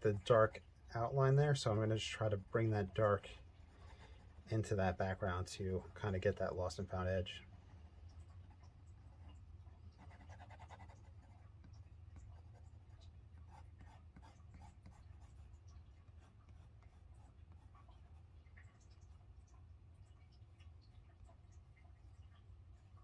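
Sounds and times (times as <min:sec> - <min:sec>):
pencil scratching on paper: 0:03.0 - 0:04.7, 0:07.5 - 0:18.2.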